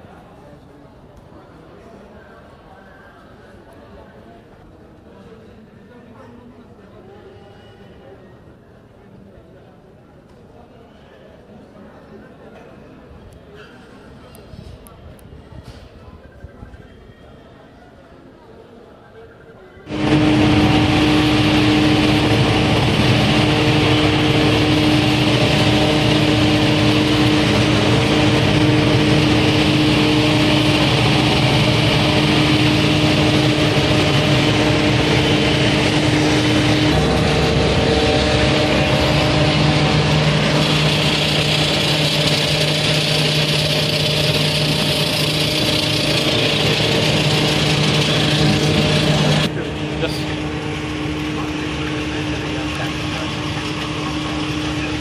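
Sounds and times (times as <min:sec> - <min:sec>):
airliner engine hum with tones: 0:18.9 - 0:55.0.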